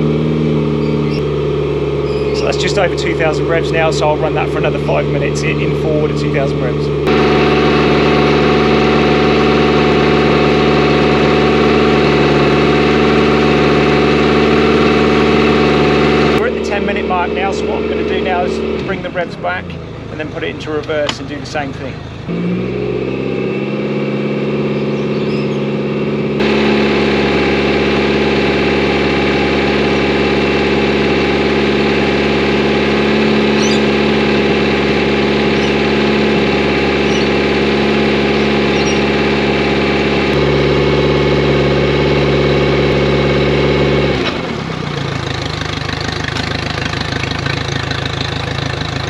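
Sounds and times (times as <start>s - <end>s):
outboard engine running: 0.0s - 49.0s.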